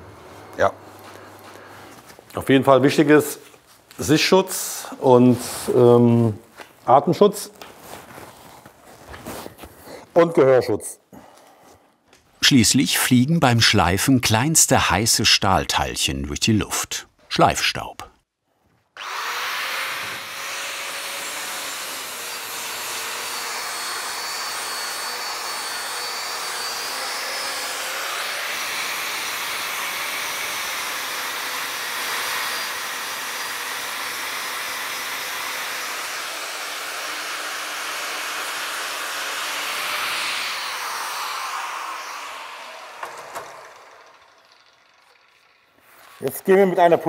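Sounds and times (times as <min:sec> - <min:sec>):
angle grinder grinding steel: 0:19.0 - 0:47.0.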